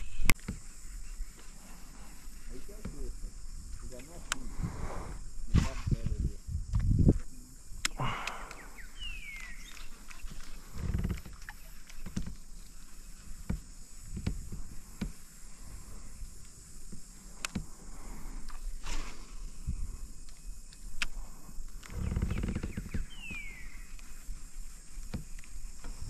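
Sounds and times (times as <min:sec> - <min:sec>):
faint steady hiss: 0:00.0 - 0:26.0
low thumps and knocks: 0:13.4 - 0:15.3.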